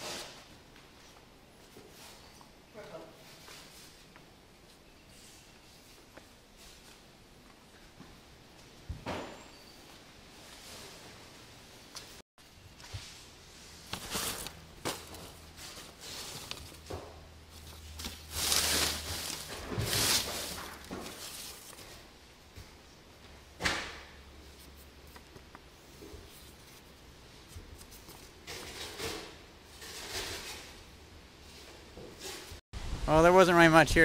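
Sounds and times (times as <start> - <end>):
paper rustling and crinkling: 13.7 - 22.0.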